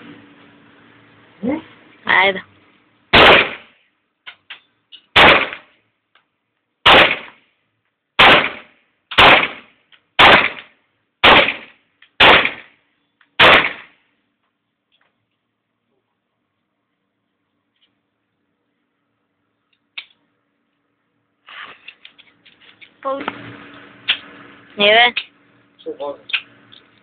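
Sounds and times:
pistol shots: 3.1s - 3.7s, 5.2s - 5.7s, 6.8s - 7.4s, 8.2s - 12.7s, 13.4s - 14.0s.

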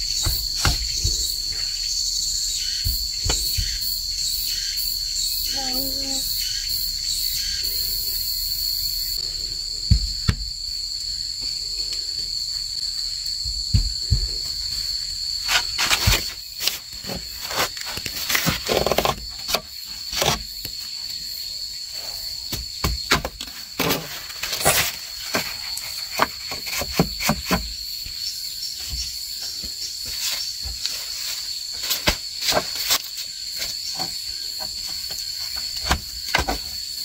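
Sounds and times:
bamboo knocking and scraping: 0.0s - 4.4s, 13.1s - 21.2s, 22.2s - 37.0s
high insect drone: 0.0s - 37.0s.

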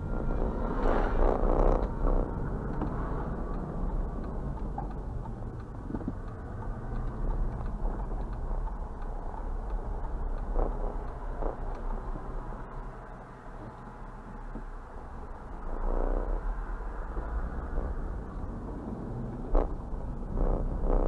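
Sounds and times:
car engine and road noise: 0.0s - 21.0s
faint ticks: 1.5s - 14.8s.

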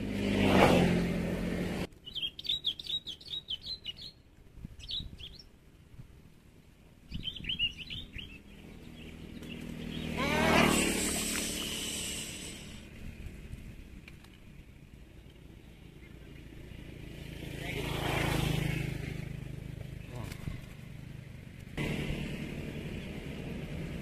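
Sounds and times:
vehicle passing: 0.0s - 1.9s, 7.9s - 14.0s, 14.8s - 24.0s
small bird chirping: 2.0s - 5.6s, 7.0s - 10.2s.

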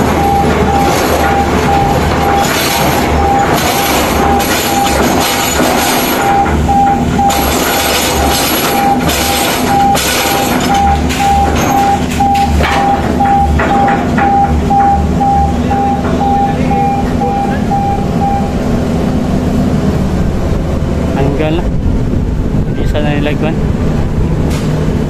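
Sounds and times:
electronic warning beeper: 0.0s - 18.6s
drill rig running: 0.0s - 19.4s.

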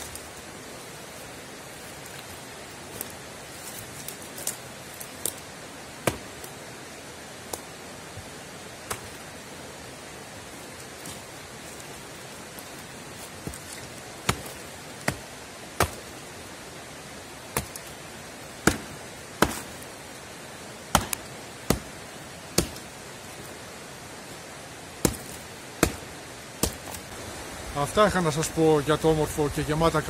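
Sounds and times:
steady hiss: 0.0s - 30.0s
axe chopping into log: 6.0s - 6.4s, 14.2s - 15.2s, 15.8s - 16.1s, 17.5s - 17.9s, 18.6s - 19.8s, 20.9s - 22.0s, 22.6s - 22.9s, 25.0s - 27.0s.

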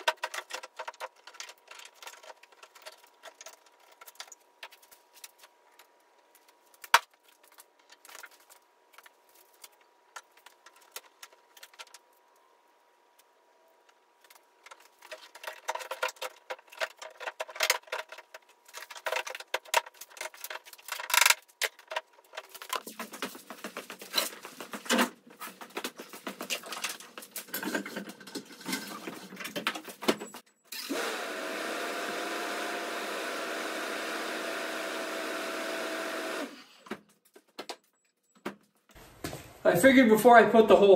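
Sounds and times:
plastic and metal parts clicking: 0.0s - 5.3s, 14.3s - 23.0s.

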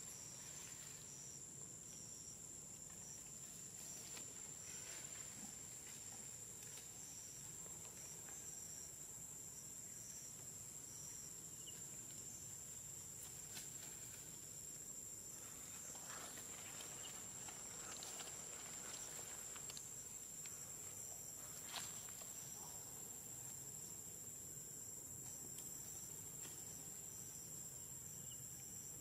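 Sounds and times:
rustling of leafy undergrowth: 2.9s - 8.2s, 12.0s - 23.8s.

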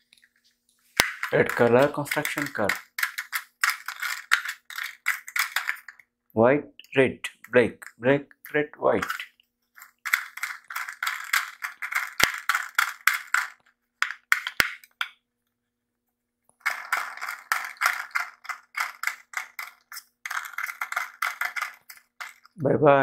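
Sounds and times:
plastic toy clicking and rattling: 1.0s - 6.1s, 9.0s - 15.2s, 16.6s - 22.6s.

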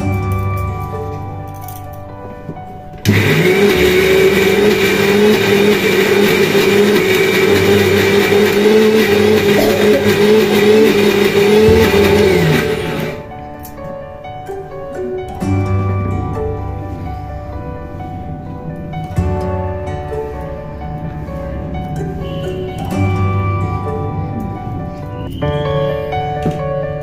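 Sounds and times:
background music: 0.0s - 27.0s
mixer grinder motor whine: 3.0s - 13.2s
motor winding down: 3.1s - 13.2s.

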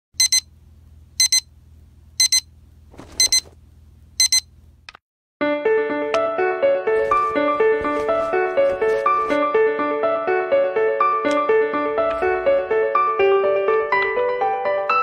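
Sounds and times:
digital alarm clock beeping: 0.2s - 0.5s, 1.2s - 1.5s, 2.2s - 2.5s, 3.2s - 3.4s, 4.2s - 4.5s
music: 5.4s - 15.0s.

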